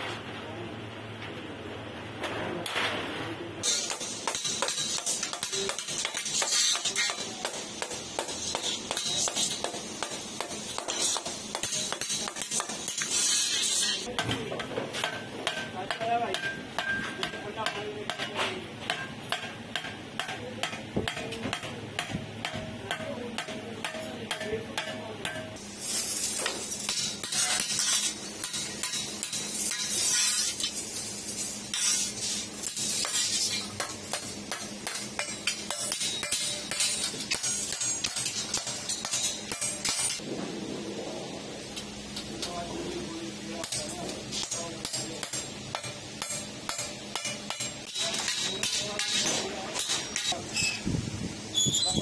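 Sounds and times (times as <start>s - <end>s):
hammer tapping sheet metal: 3.6s - 25.6s, 31.7s - 40.2s, 43.6s - 50.4s.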